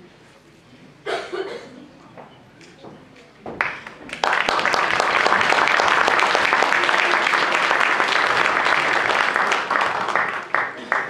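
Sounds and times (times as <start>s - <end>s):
audience clapping: 3.6s - 11.0s.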